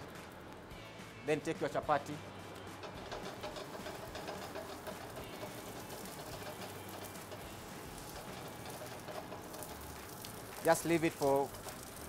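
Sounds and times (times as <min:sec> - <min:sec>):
bread sizzling in butter: 0:02.6 - 0:12.0.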